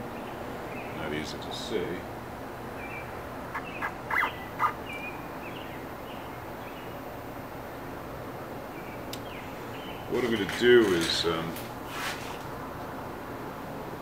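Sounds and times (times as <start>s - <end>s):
steady low hum: 0.0s - 8.8s
high chirping tones: 2.8s - 5.2s.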